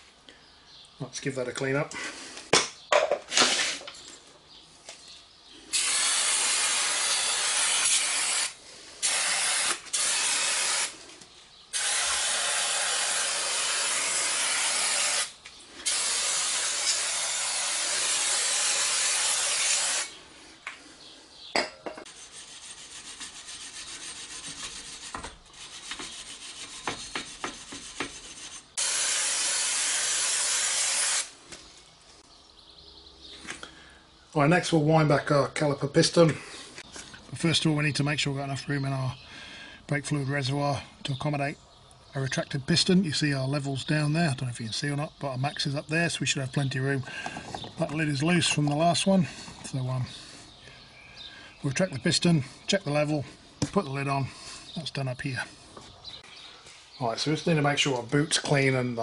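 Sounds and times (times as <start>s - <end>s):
spray can hissing: 5.7s - 11.0s, 11.8s - 20.2s, 28.8s - 31.4s.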